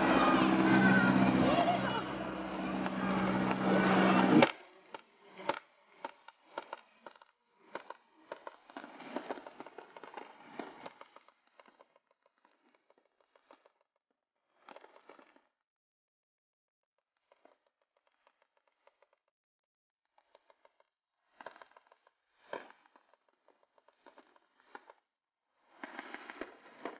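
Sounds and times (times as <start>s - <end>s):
loud rumble with low hum: 0.0s - 4.5s.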